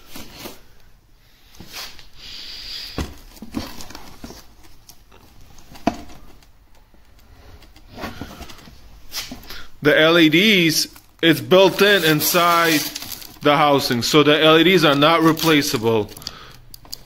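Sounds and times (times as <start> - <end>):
plastic film crinkling: 10.4 - 17.0.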